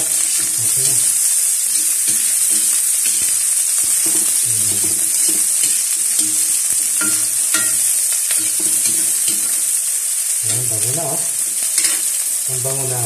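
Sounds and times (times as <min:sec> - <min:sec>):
spatula scraping a wok: 0:00.0 - 0:12.4
onion and garlic sizzling in oil: 0:00.0 - 0:13.0
spatula knocking against wok: 0:01.7 - 0:09.6.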